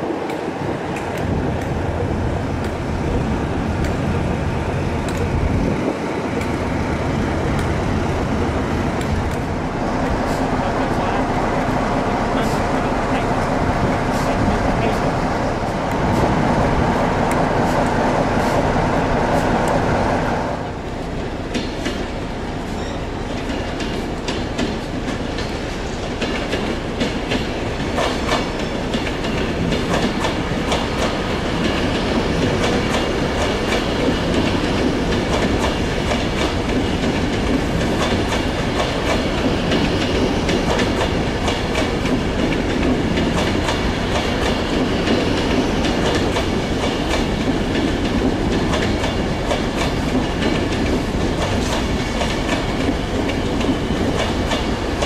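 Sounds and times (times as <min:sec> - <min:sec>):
train wheels rumbling on rail: 0:00.0 - 0:55.0
diesel locomotive engine running: 0:01.2 - 0:21.5
wheels clicking over rail joints: 0:20.8 - 0:55.0
faint wheel squeal: 0:22.6 - 0:23.2.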